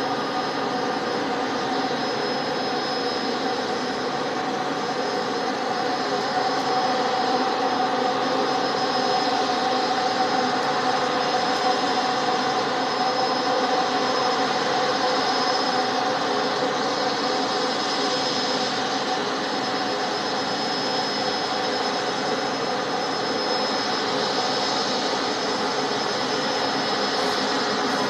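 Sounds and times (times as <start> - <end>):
jet engines idling: 0.0 - 28.0.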